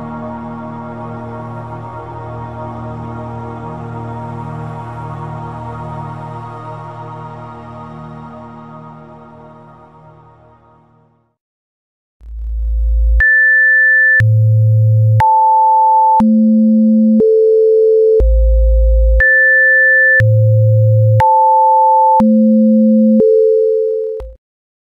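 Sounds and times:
stepping pure tones: 0:12.2 - 0:17.4, 0:18.1 - 0:24.3
steady sine tone: 0:12.2 - 0:24.4.

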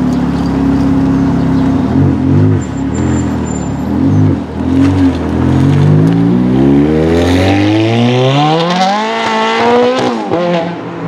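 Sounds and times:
car engine idling and revving: 0:00.0 - 0:11.0.

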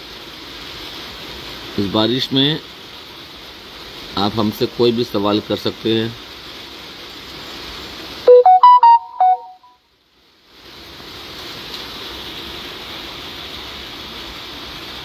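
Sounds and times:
rain hiss: 0:00.0 - 0:15.0
short electronic jingle: 0:08.3 - 0:09.6.

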